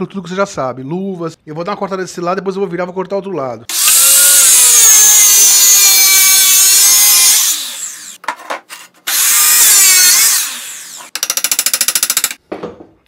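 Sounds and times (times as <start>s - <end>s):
circular saw screeching through steel: 9.1s - 11.1s.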